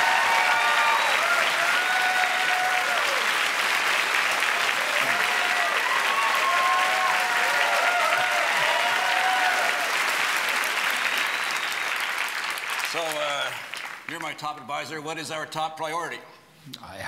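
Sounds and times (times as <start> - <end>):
people whooping and cheering: 0.0 - 3.6, 4.3 - 12.4
audience applauding: 0.0 - 14.5.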